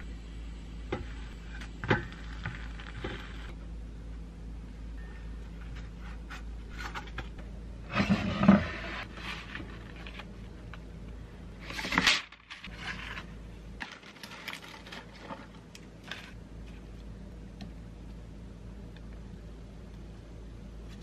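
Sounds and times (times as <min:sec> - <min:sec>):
parchment paper rustling: 0:11.6 - 0:16.9.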